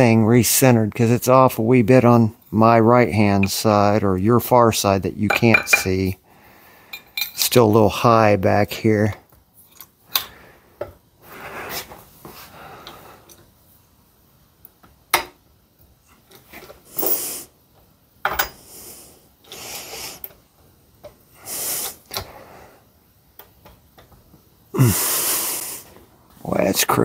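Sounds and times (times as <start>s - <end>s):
short hissing bursts: 16.8s - 17.6s, 18.6s - 20.3s, 21.3s - 23.0s, 24.8s - 26.0s.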